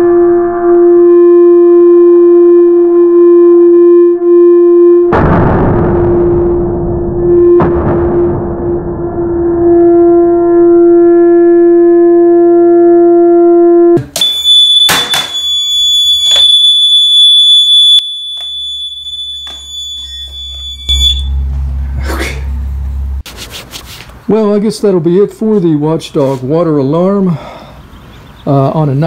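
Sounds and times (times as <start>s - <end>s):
lower steady tone: 0.0s - 23.2s
high-pitched electronic alarm tone: 9.1s - 21.9s.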